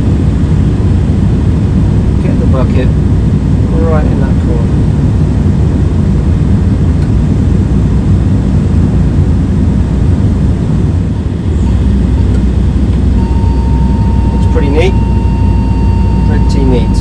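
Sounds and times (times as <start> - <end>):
excavator diesel engine: 11.0 - 17.0.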